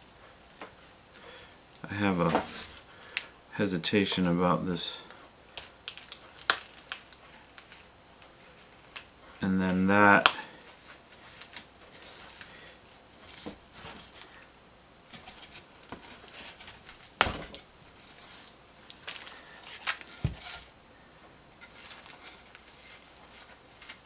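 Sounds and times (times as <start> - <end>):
twine rustling and scraping: 2.0 - 2.9, 15.1 - 20.7, 21.5 - 24.0.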